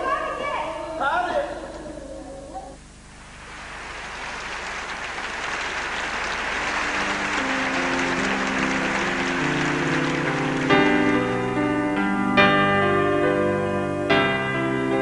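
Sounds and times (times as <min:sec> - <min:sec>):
audience applauding: 0:03.4 - 0:11.6
music: 0:06.2 - 0:15.0.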